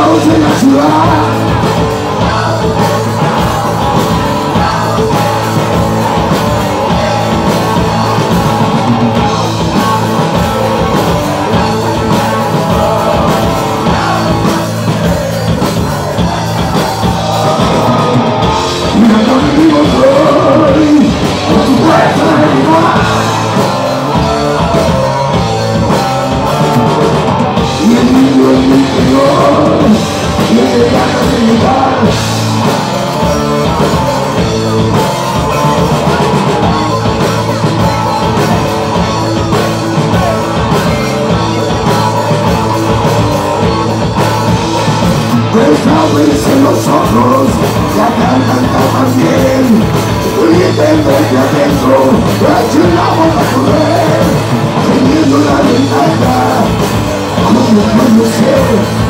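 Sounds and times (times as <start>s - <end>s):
distorted electric guitar: 0.0s - 59.0s
drums: 0.0s - 59.0s
person singing: 0.0s - 59.0s.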